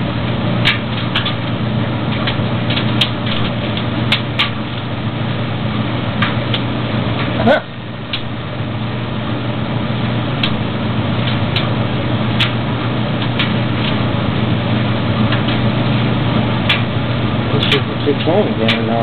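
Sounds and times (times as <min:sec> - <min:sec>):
dryer humming: 0:00.0 - 0:19.0.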